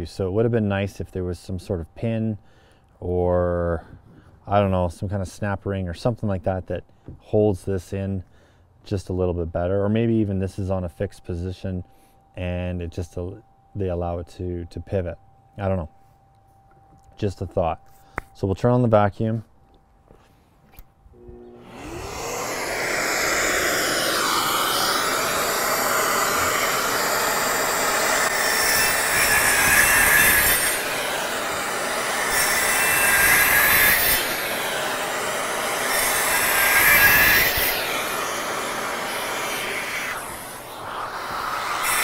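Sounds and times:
circular saw cutting wood: 21.2s - 42.0s
dust extractor running: 21.2s - 42.0s.

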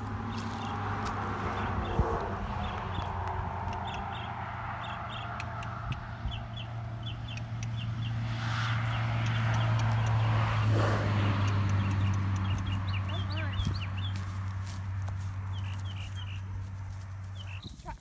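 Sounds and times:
high bird chirps: 3.7s - 8.2s, 17.4s - 17.8s.

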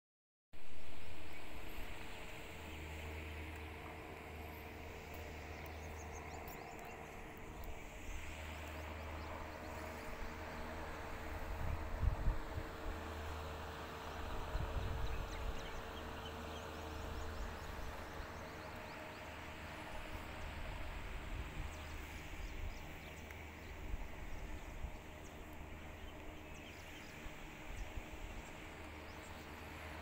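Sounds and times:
faint hum: 0.6s - 30.0s
distant birds chirping: 0.8s - 30.0s
wind rumbling on microphone: 6.3s - 13.3s, 14.1s - 16.2s.

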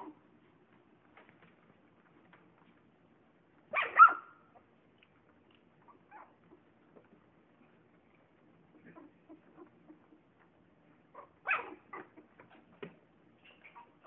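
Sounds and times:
faint small sounds: 0.0s - 14.0s
puppy yelping: 3.7s - 4.7s, 5.8s - 6.7s, 8.7s - 10.3s, 11.1s - 12.8s.

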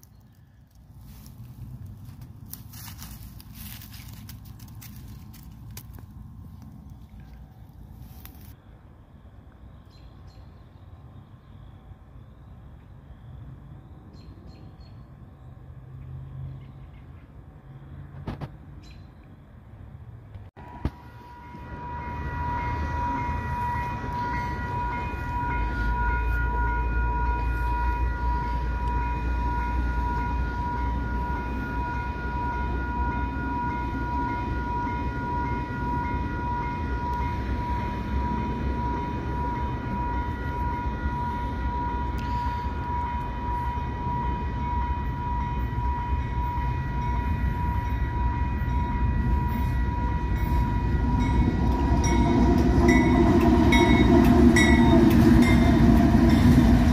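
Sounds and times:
freight train rumble: 0.0s - 56.9s
crossing bell ringing: 1.0s - 7.5s, 20.6s - 56.9s.

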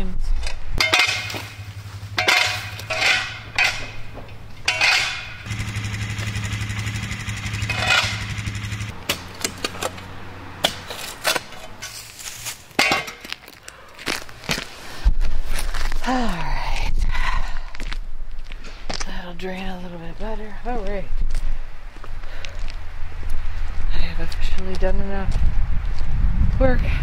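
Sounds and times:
engine humming: 0.5s - 14.5s
shovel scraping on concrete: 0.8s - 4.0s, 4.6s - 5.5s, 7.6s - 8.5s, 9.1s - 13.4s.

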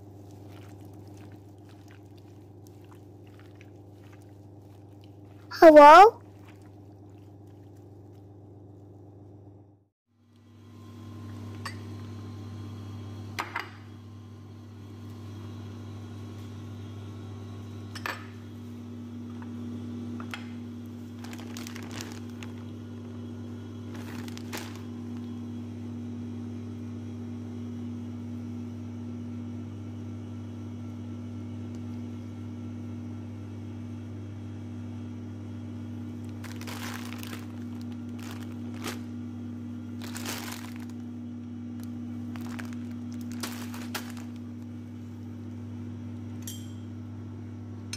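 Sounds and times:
plastic bag crinkling: 21.0s - 22.8s, 23.9s - 25.2s, 36.2s - 39.2s, 39.9s - 41.2s, 41.8s - 44.8s.

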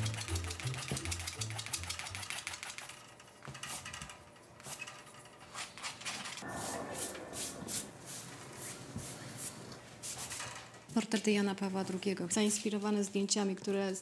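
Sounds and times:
charcoal scratching on paper: 0.0s - 3.0s.

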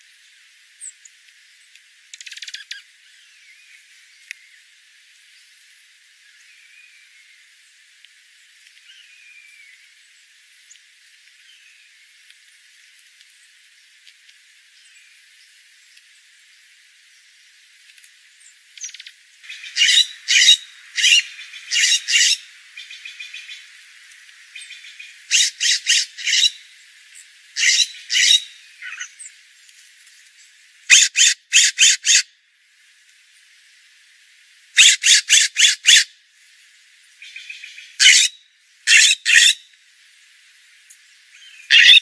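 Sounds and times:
faint hiss: 0.0s - 31.0s, 32.3s - 34.9s, 36.1s - 41.7s
jays harsh calls: 19.5s - 22.4s, 30.9s - 32.2s, 34.8s - 36.1s, 38.0s - 39.6s, 41.7s - 42.0s.

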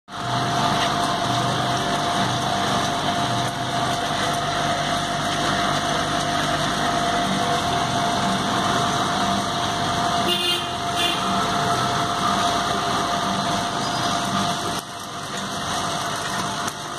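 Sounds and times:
electromagnetic drive buzzing: 5.4s - 14.4s.

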